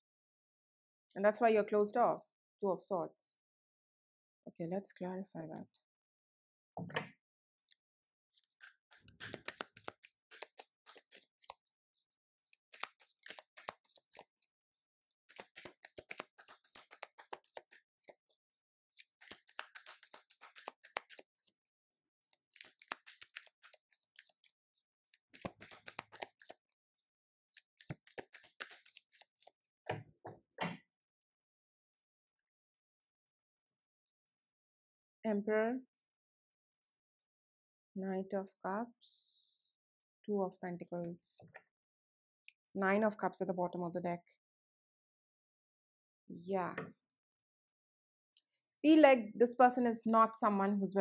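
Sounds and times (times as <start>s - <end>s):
cards being shuffled: 8.3s - 11.7s, 12.5s - 21.6s, 22.2s - 24.5s, 25.1s - 26.6s, 27.5s - 29.6s.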